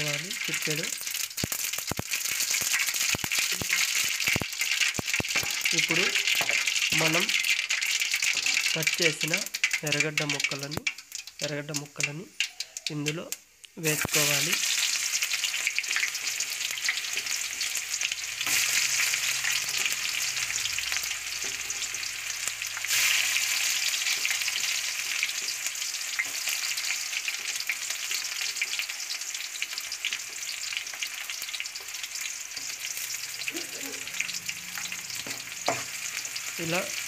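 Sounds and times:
onions sizzling in oil: 0.0 - 37.0.

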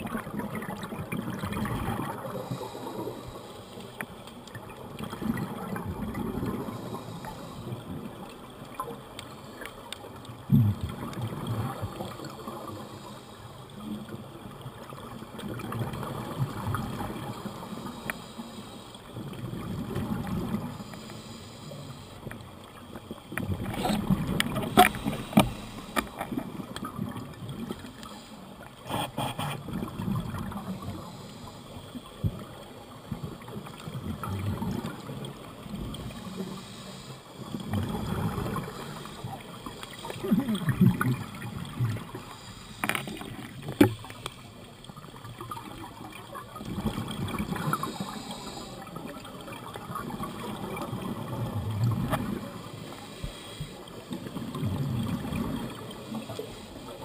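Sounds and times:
underwater regulator bubbles: 23.3 - 28.2, 45.0 - 57.0.

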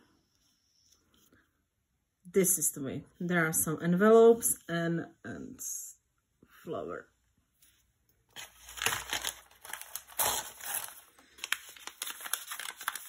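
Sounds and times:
paper packaging crinkling: 8.3 - 13.0.

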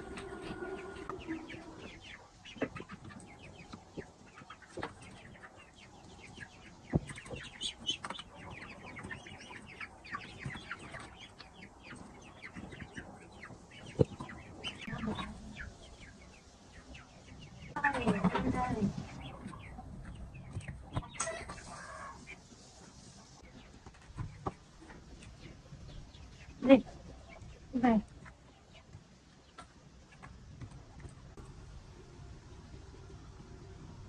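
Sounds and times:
chicks peeping and chirping: 0.0 - 34.0.

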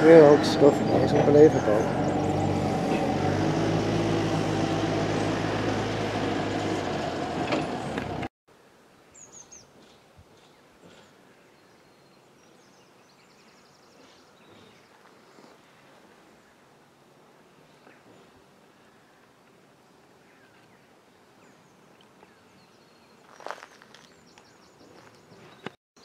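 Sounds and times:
engine running: 0.0 - 8.3.

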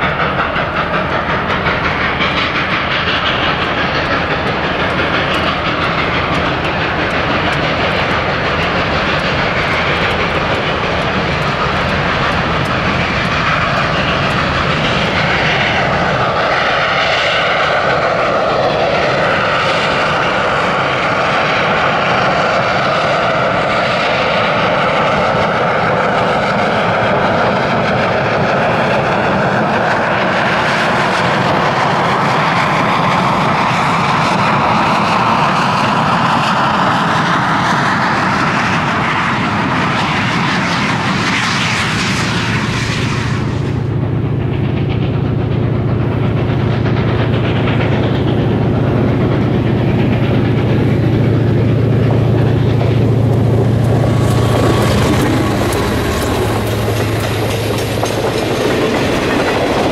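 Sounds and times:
steam locomotive exhaust roar: 0.0 - 59.9.

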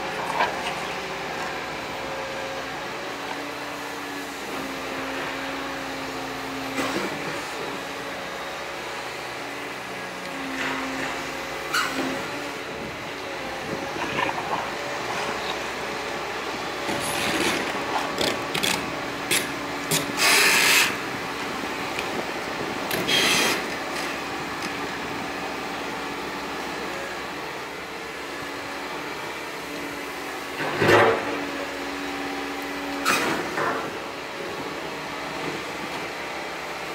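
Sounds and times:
diesel engine running: 0.0 - 36.9
steel scraping stony ground: 16.8 - 21.0.

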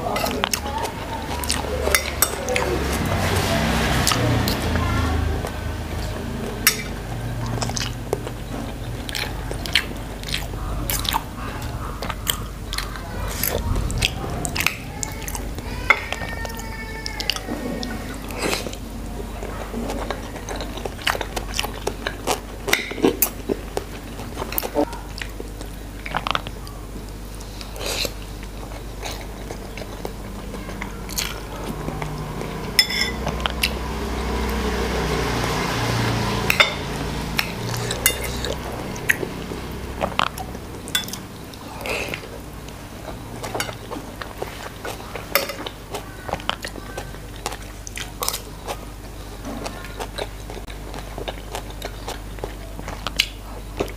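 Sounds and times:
chewing sounds: 0.0 - 53.9
low swelling sound: 10.4 - 17.4
cutlery clinking on plate: 32.8 - 33.3.

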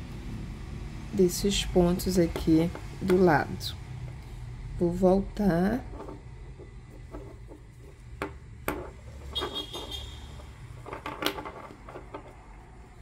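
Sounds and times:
cord rustling and scraping: 5.8 - 13.0.

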